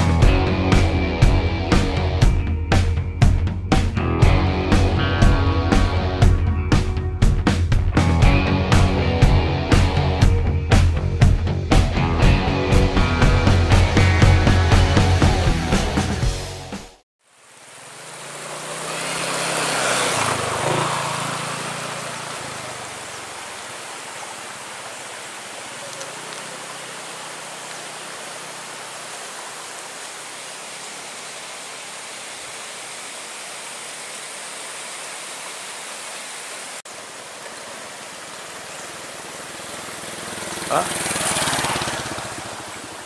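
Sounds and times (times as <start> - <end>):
rocky stream flowing: 17.3 - 43.0.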